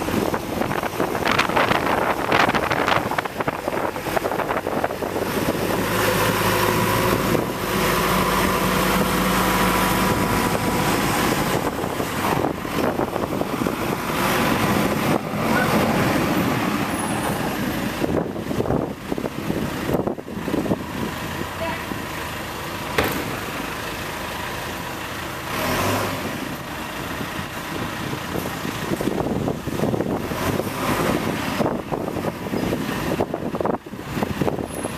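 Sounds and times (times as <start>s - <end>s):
backhoe diesel engine running: 0.0s - 34.9s.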